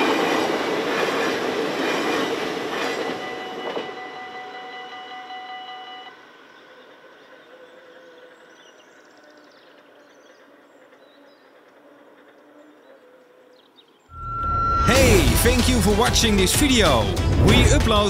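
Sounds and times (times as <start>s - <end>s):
level crossing warning bells: 2.9s - 6.3s.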